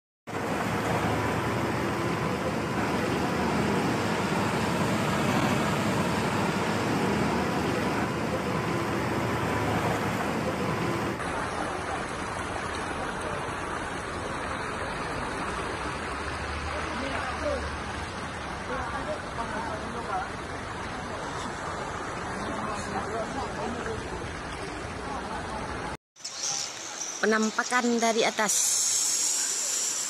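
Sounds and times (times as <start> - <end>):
vehicle engine running: 0.3 - 12.4
floodwater rushing: 0.3 - 26.0.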